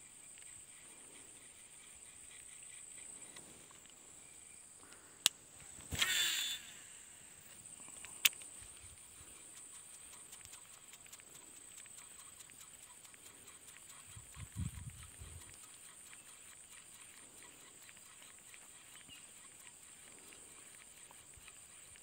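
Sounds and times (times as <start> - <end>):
reel spool spinning whir: 5.8 - 7.6
fishing reel clicking: 6.0 - 6.8
reel ticking as line winds: 8.2 - 22.0.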